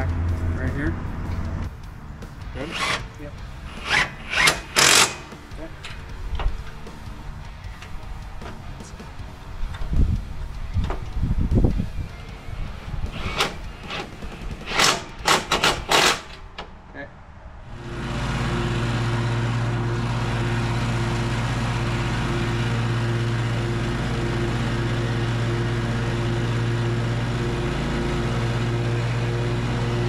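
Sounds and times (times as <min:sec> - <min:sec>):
mower engine running: 0:02.2 - 0:16.6, 0:17.7 - 0:30.0
sharp clicks and knocks: 0:13.1 - 0:16.7.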